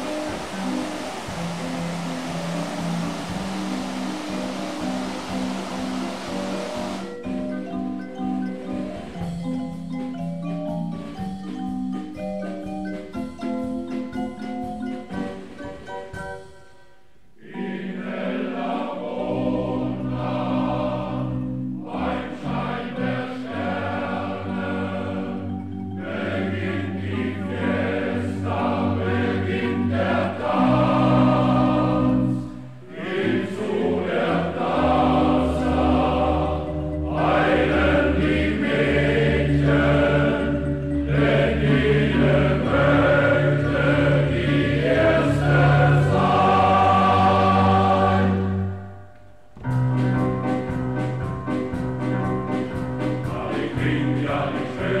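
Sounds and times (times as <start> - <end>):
choral singing: 0.0 - 7.2, 17.4 - 49.1, 53.0 - 55.0.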